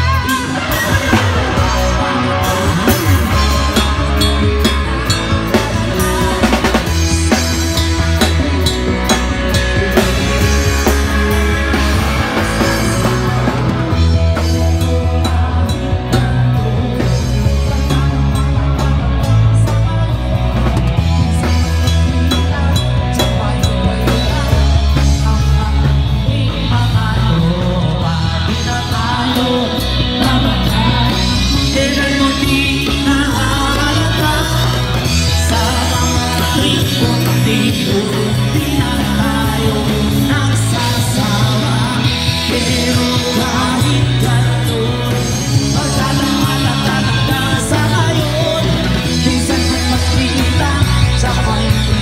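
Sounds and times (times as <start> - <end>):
drum kit: 0.0 - 52.0
electric guitar: 0.0 - 52.0
keyboard: 0.0 - 52.0
person singing: 0.0 - 52.0.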